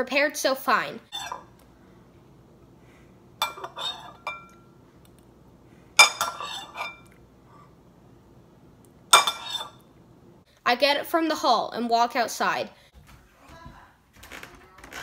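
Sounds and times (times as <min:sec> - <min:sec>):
metal spoon clinking in ceramic bowl: 0:03.4 - 0:04.6, 0:06.0 - 0:07.1, 0:09.1 - 0:09.8.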